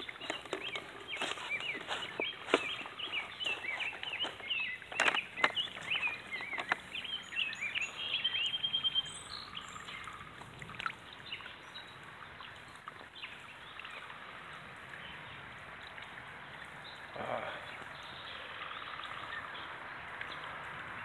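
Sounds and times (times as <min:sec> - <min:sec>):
bird trill: 0:00.0 - 0:09.9
faint outdoor hiss: 0:00.0 - 0:21.0
small songbirds chirping: 0:00.0 - 0:21.0.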